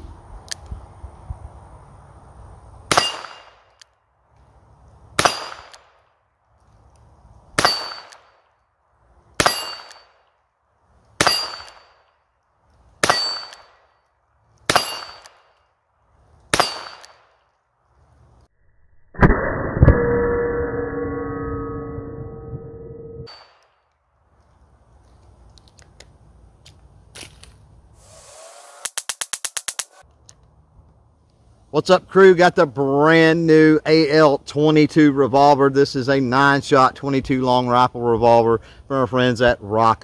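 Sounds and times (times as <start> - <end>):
revolver gunshots: 2.9 - 3.7, 5.2 - 6.0, 14.7 - 15.5.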